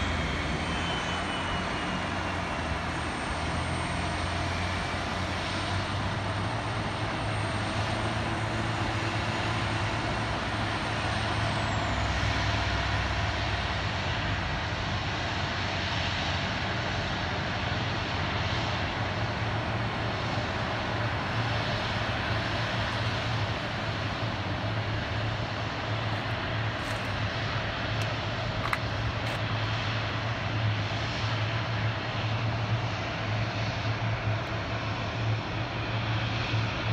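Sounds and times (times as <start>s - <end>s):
faint high whine: 0.0s - 5.0s.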